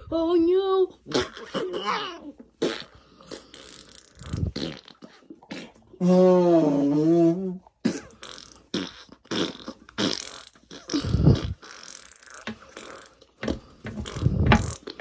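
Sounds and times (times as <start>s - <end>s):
fart noises: 1.0s - 15.0s.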